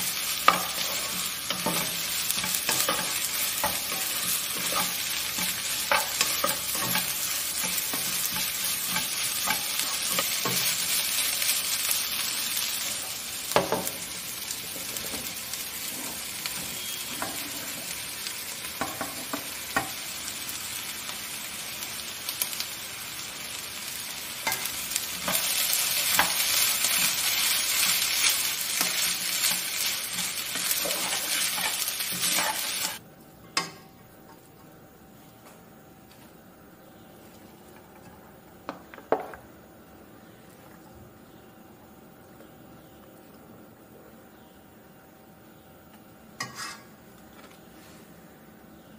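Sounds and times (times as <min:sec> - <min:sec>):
rice sizzling in a pot: 0:00.0 - 0:33.0, 0:46.0 - 0:48.4
spatula scraping a pot: 0:46.4 - 0:46.9.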